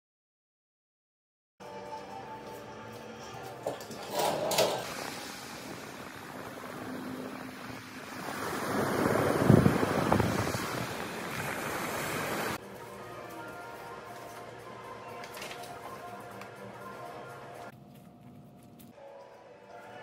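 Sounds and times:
ocean surf washing up: 4.8s - 12.6s
wind rumbling on microphone: 4.8s - 12.6s.

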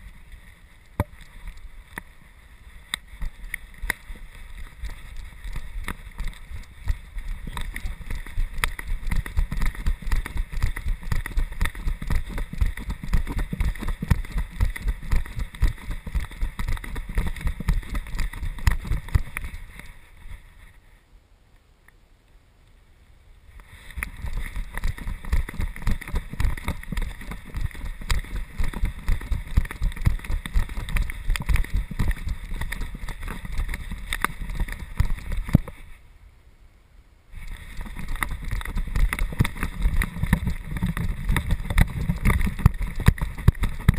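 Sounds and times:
camera bumping and knocking: 3.8s - 19.9s, 23.9s - 35.8s, 37.7s - 43.9s.

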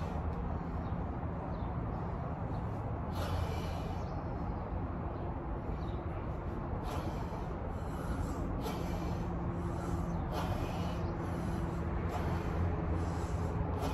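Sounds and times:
low outdoor rumble: 0.0s - 13.9s.

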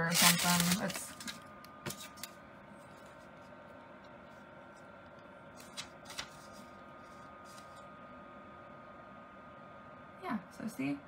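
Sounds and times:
sharp paper crackles: 0.0s - 2.3s, 5.6s - 7.9s
paper rustling in airflow: 0.0s - 8.0s
small fan running: 0.0s - 11.0s.

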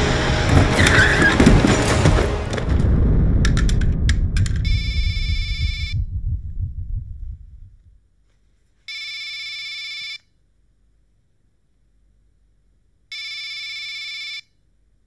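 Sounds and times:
low rumble: 0.0s - 8.1s
mobile phone ringing: 8.9s - 10.3s, 13.1s - 14.5s.

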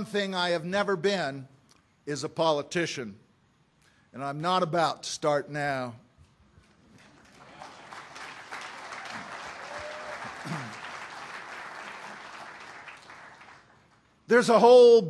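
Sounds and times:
audience applauding: 6.9s - 14.1s.

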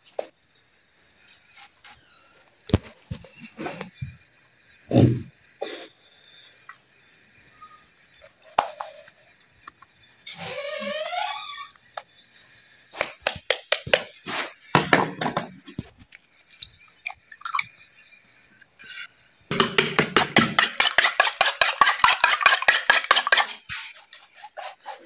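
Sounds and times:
egg beaten in a bowl: 12.9s - 14.2s, 19.5s - 25.0s
dishes and utensils clinking: 14.8s - 16.0s, 18.8s - 25.0s.

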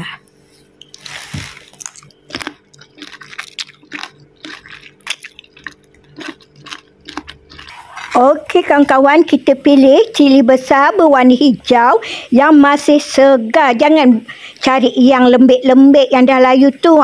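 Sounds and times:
person chewing crunchy food: 0.8s - 9.0s.

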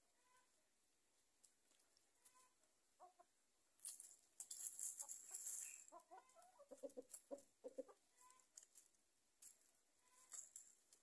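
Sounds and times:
hens clucking: 2.1s - 3.4s, 4.8s - 8.9s
faint high rustling and crackling: 3.8s - 7.5s, 8.1s - 11.0s.

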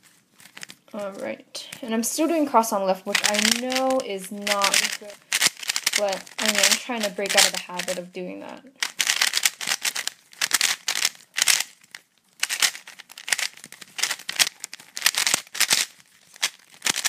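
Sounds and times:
puzzle cube clicking: 3.1s - 8.0s, 8.7s - 17.0s.

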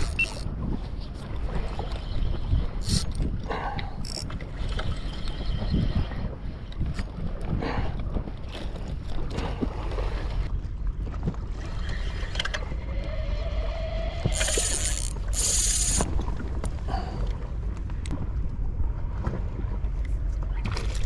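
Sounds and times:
fishing reel clicks: 0.0s - 0.5s, 2.8s - 3.2s, 14.2s - 16.1s
short high-pitched buzzes: 14.3s - 16.0s.

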